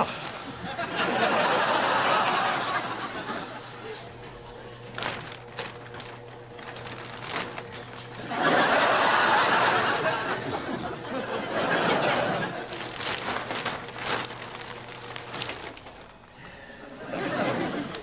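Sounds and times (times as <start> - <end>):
audience laughter: 0.0 - 4.3, 8.0 - 13.2, 16.4 - 18.0
small clicks and rustles: 4.9 - 8.2, 12.7 - 16.3.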